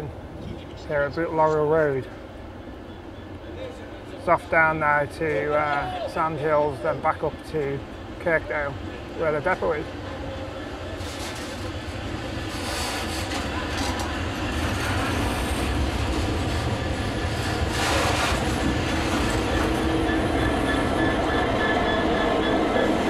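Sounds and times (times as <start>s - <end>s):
diesel locomotive engine rumble: 0.0s - 23.0s
train wheel noise: 0.0s - 23.0s.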